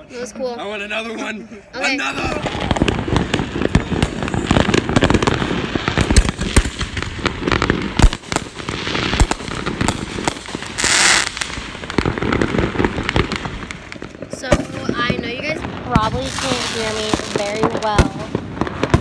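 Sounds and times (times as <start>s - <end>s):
fireworks bangs pops and crackles: 1.8s - 19.0s
heavy fireworks booms: 1.8s - 19.0s.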